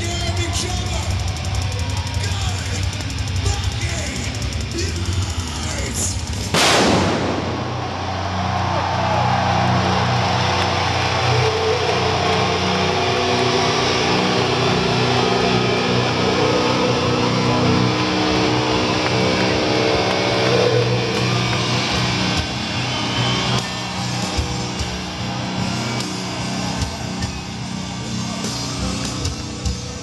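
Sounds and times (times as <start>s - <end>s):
crowd noise: 0.0s - 30.0s
crowd clapping: 7.5s - 13.8s, 18.5s - 27.3s
distorted electric guitar notes: 9.8s - 30.0s.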